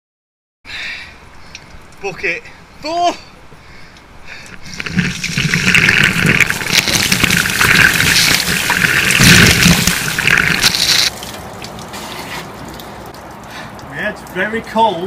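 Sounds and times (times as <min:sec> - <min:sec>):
water splashing: 0:04.3 - 0:14.4.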